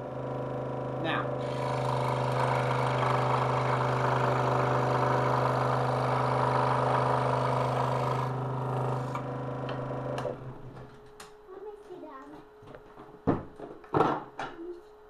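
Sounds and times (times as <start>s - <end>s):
scroll saw motor hum: 0.0s - 10.5s
saw blade cutting wood: 1.4s - 9.3s.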